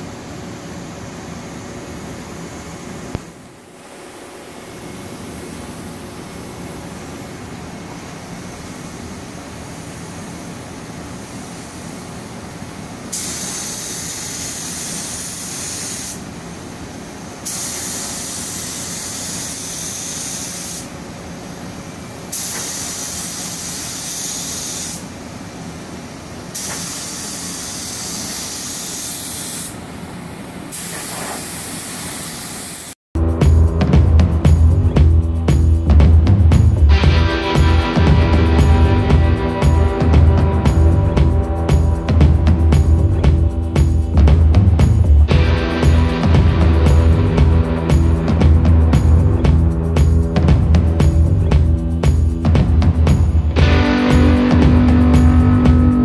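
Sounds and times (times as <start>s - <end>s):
paint spray gun hissing: 7.8s - 25.2s, 25.8s - 29.8s, 30.6s - 33.0s.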